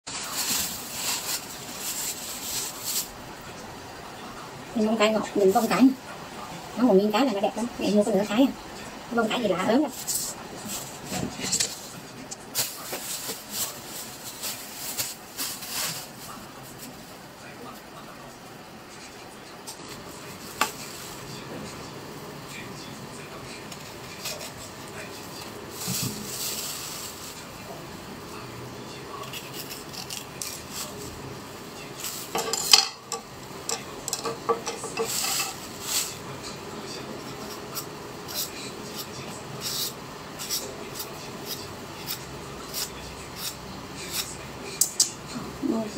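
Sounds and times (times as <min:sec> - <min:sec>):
plastic bag crinkling: 0:00.1 - 0:03.2, 0:12.5 - 0:16.8, 0:25.7 - 0:27.5.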